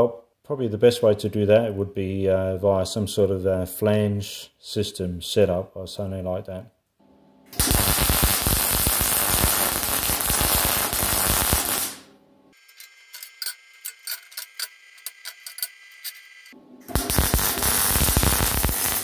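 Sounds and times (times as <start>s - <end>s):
welding arc crackling: 7.6s - 12.1s, 16.9s - 19.0s.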